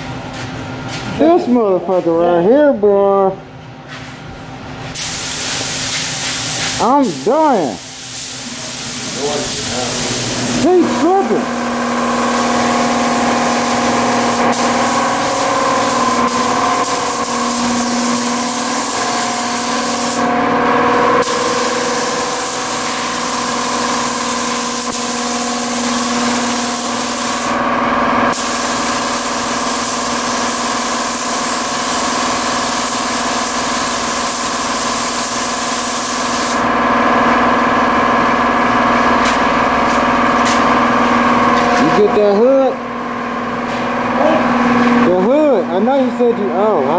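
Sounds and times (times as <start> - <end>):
steady machine hum: 0.0 - 46.9
paint spray gun hissing: 5.0 - 20.3, 21.2 - 27.6, 28.3 - 36.7.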